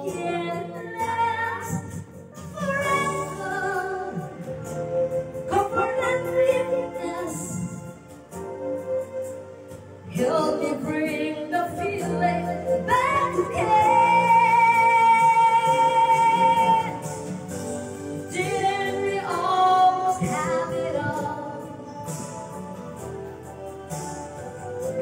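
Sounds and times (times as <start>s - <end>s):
woman singing: 0.0s - 4.5s, 5.5s - 8.0s, 10.1s - 17.1s, 18.3s - 22.1s
backing music: 0.0s - 25.0s.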